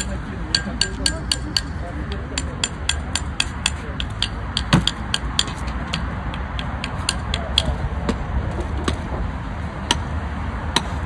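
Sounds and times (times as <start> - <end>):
axe striking wooden board: 3.1 - 6.1.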